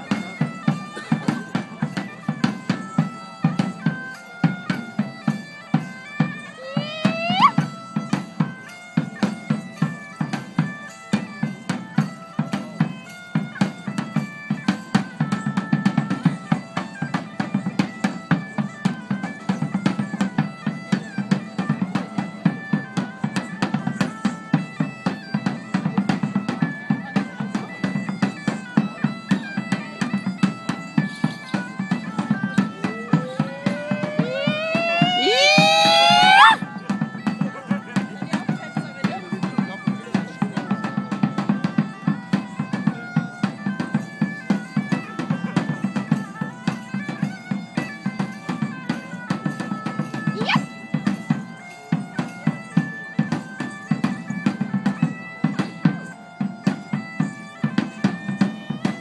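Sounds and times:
bagpipe dance music: 0:00.1 - 0:25.7, 0:30.2 - 0:38.6, 0:47.0 - 0:53.6
drumbeat: 0:06.6 - 0:07.7, 0:32.2 - 0:36.6
rising pitched glide: 0:33.1 - 0:36.6.

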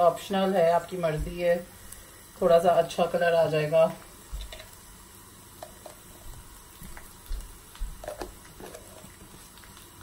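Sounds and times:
onion frying in oil: 0:00.0 - 0:10.0.

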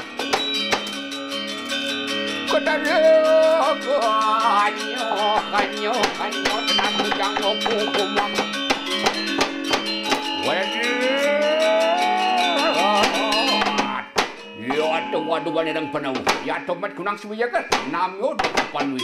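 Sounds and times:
metallophones ringing: 0:00.0 - 0:19.0
man's voice gliding in pitch: 0:02.5 - 0:08.4, 0:10.4 - 0:17.5.

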